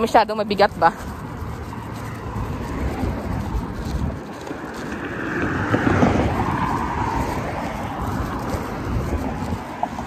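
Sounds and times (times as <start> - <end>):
wind buffeting microphone: 0.0 - 10.0
car passing by: 1.7 - 10.0.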